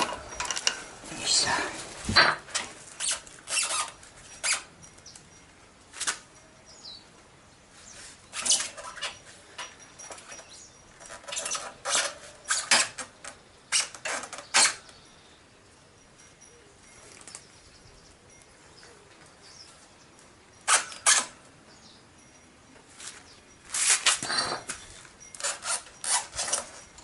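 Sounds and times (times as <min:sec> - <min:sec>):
rubber tyre squeaks and scuffs: 0:02.9 - 0:04.7, 0:07.8 - 0:09.3, 0:10.1 - 0:13.0, 0:20.7 - 0:21.4, 0:23.7 - 0:27.0.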